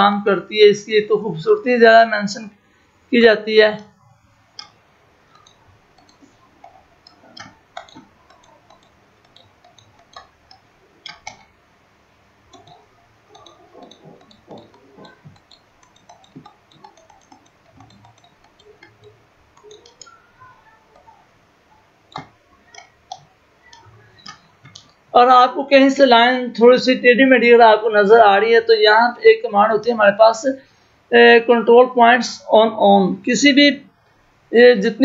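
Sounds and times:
computer mouse buttons clicking: 4.5s - 11.6s, 12.5s - 21.3s, 22.1s - 25.1s.

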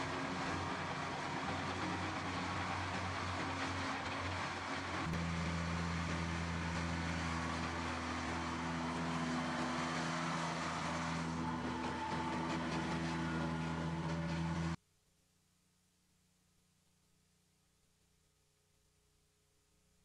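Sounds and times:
tractor diesel engine drone: 0.0s - 14.8s.

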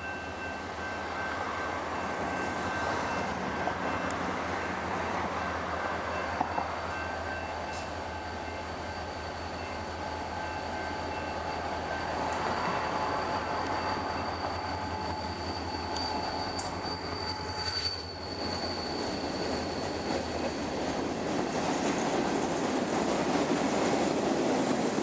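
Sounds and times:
diesel locomotive engine drone: 0.0s - 25.0s
high wheel squeal: 6.4s - 20.8s
train wheels clattering on rails: 11.0s - 25.0s.

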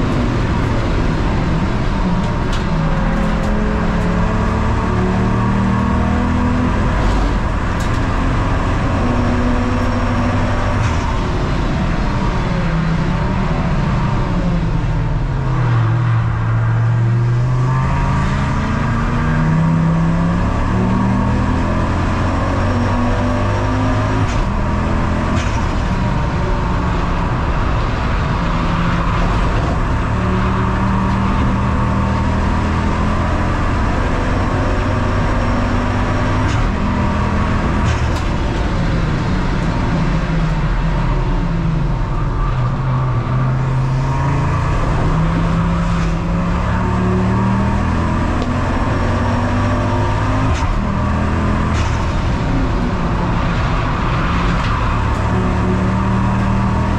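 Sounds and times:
race car engine shifting gears: 0.0s - 13.9s, 17.8s - 56.9s.

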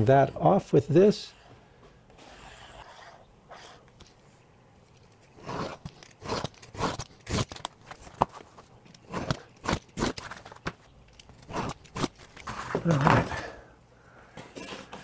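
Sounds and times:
utility knife scoring plastic: 4.8s - 12.8s.

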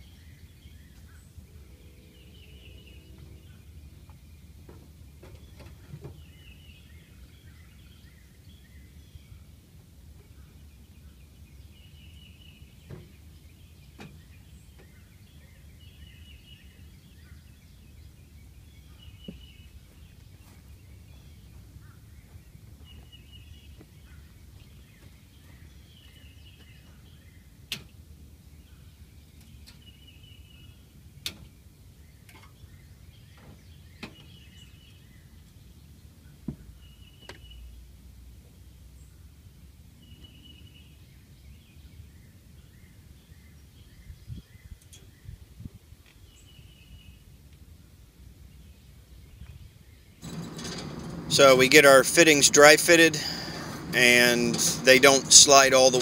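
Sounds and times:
low steady rumble: 1.3s - 5.2s, 50.2s - 56.0s
bird chirping phrase: 1.4s - 4.1s, 50.3s - 56.0s.

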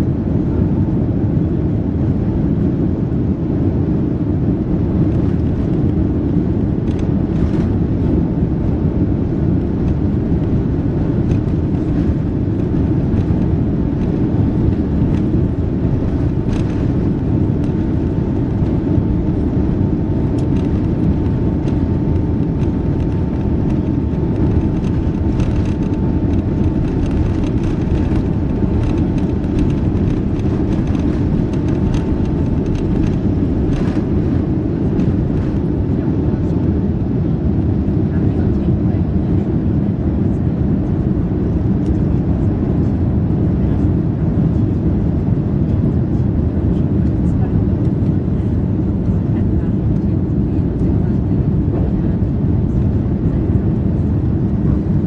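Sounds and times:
aircraft cabin rumble while taxiing: 0.0s - 55.0s
faint steady whine: 1.6s - 39.2s.

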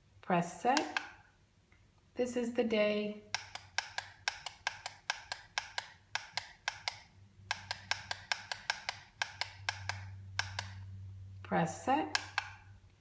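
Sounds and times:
plastic push button clicking: 3.3s - 10.8s.

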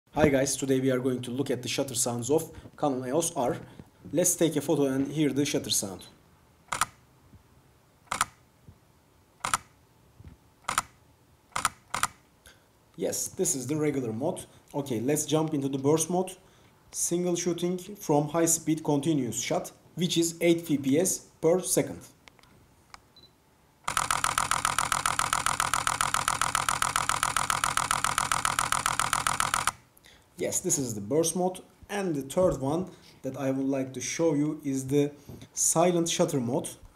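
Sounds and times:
camera shutter double click: 6.7s - 7.0s, 8.1s - 8.4s, 9.4s - 9.7s, 10.7s - 12.2s, 23.9s - 29.8s
high focus beep: 23.2s - 23.4s.

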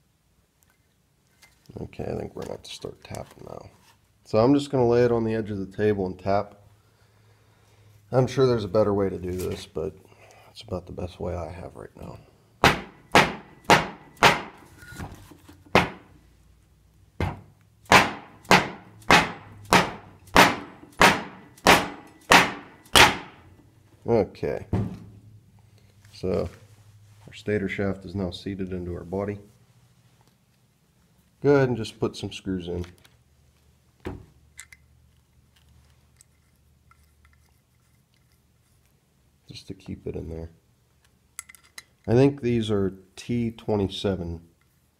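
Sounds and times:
metal screws clicking on metal: 34.6s - 34.9s, 35.6s - 38.6s, 41.4s - 42.2s.

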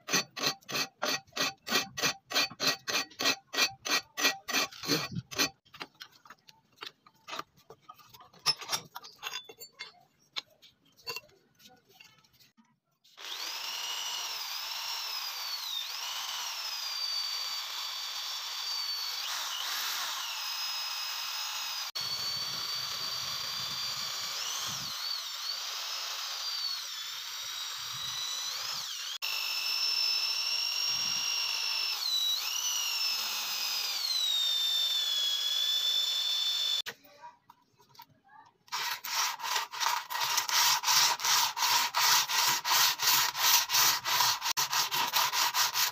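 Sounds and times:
electric drill whining into steel: 13.1s - 36.9s
blade rubbed on sandpaper: 38.7s - 45.9s.

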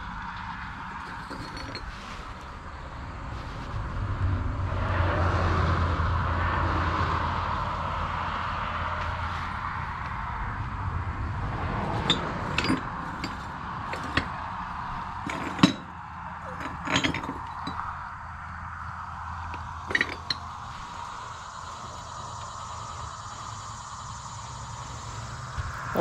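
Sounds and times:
glass bottles clinking: 1.0s - 2.0s, 11.9s - 14.4s, 15.2s - 17.9s, 19.5s - 20.4s
steady background hum: 5.8s - 26.0s.

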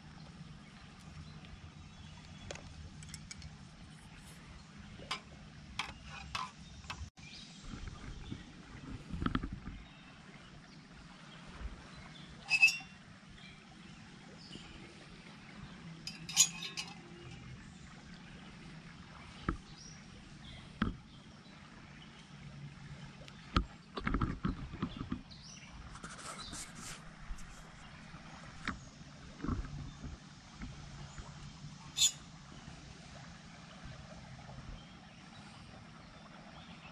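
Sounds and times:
metal pot clinking and knocking: 16.1s - 17.0s.

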